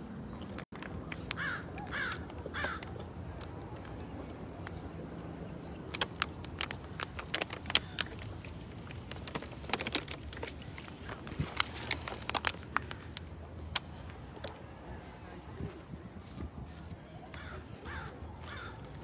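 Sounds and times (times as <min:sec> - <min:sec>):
phone and belongings handled: 0:05.7 - 0:14.6.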